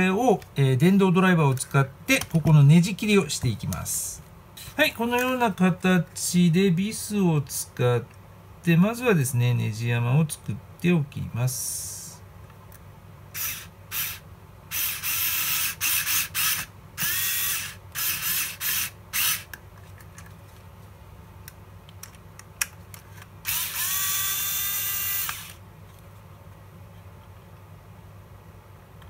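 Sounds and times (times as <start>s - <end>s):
electric screwdriver whining: 13.4s - 19.5s, 23.4s - 25.6s.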